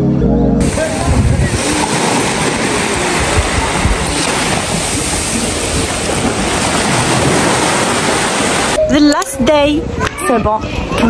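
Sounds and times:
waves washing onto shore: 0.6 - 8.8
wind on microphone: 0.6 - 11.0.

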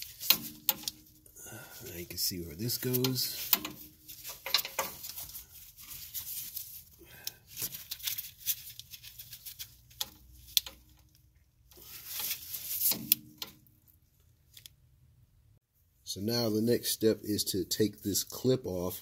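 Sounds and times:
foil rustling: 2.7 - 10.4.

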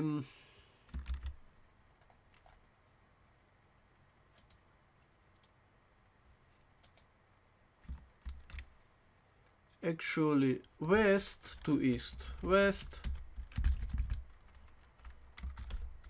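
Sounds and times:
computer mouse clicks: 4.3 - 5.6, 6.5 - 7.1.

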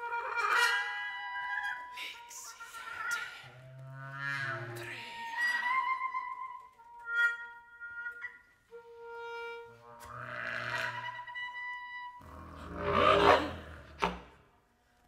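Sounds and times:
breathy blown sounds: 12.1 - 14.1.

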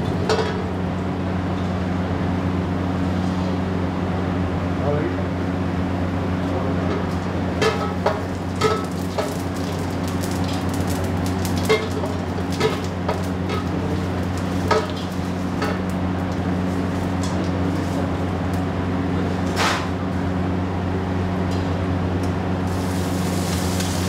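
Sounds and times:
low mechanical hum: 0.0 - 24.0
oil sizzling in a pan: 22.7 - 24.0.

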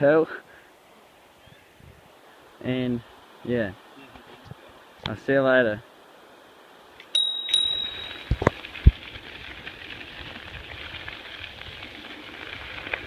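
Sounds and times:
bicycle bell ringing: 7.2 - 8.4
bike tyres crunching on gravel: 7.8 - 13.0.

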